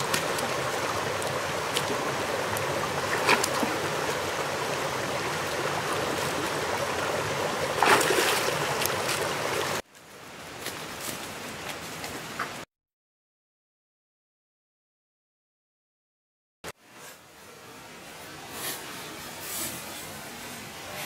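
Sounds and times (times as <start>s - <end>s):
rushing water: 0.0s - 12.4s
dog splashing in water: 3.0s - 4.2s, 7.8s - 9.4s.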